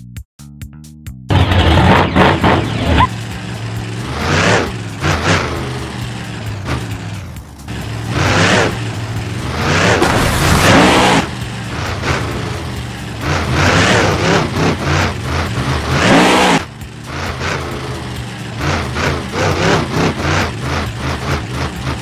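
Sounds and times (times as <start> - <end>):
monster truck engine revving: 1.3 - 22.0.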